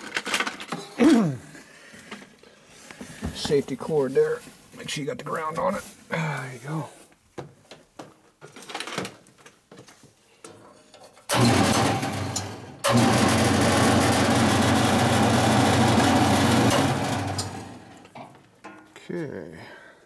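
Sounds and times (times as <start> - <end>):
bandsaw motor humming: 11.3 - 18.0.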